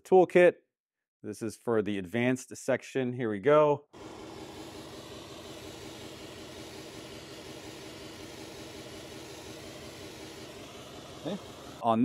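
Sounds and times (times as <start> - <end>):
pink noise hiss from speaker: 4.0 - 11.9.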